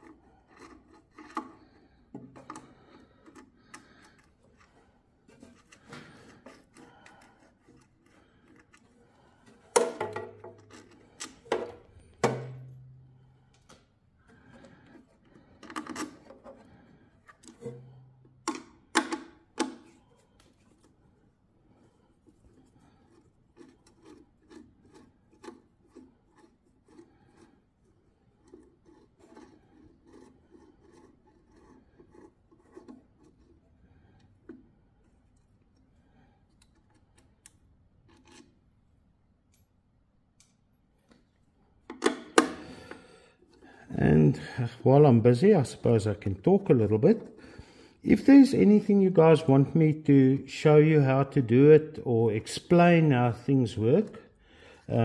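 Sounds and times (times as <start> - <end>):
small ticks and scraping: 22.3 - 34.6, 38.0 - 38.6.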